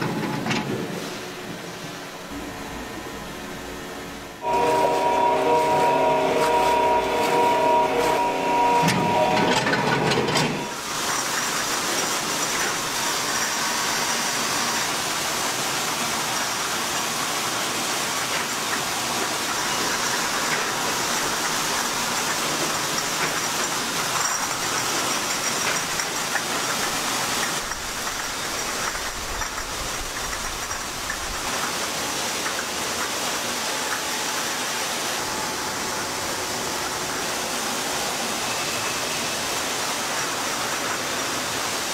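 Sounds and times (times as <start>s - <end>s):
machinery hiss and rumble: 0.0s - 41.9s
held multi-pitch tone: 2.3s - 10.8s.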